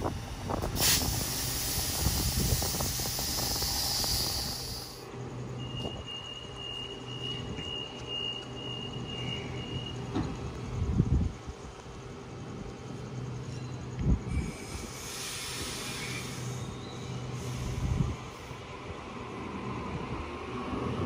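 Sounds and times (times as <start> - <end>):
compressed air hissing from train: 0.0 - 5.1, 14.3 - 18.8
train low hum: 0.0 - 21.0.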